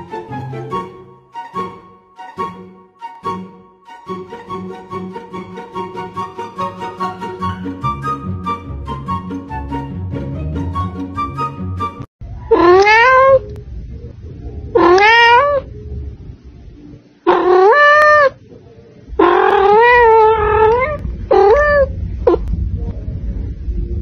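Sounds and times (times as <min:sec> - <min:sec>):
kitten meowing loudly: 0:12.5 - 0:13.4, 0:14.8 - 0:15.6, 0:17.3 - 0:18.4, 0:19.2 - 0:21.9.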